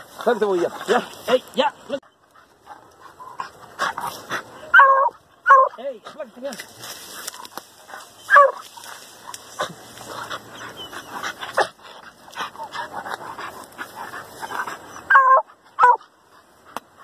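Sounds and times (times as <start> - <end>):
rustling in brush: 0.0 - 4.7, 5.8 - 15.0
dog barking and yelping: 2.5 - 5.9, 7.3 - 16.4.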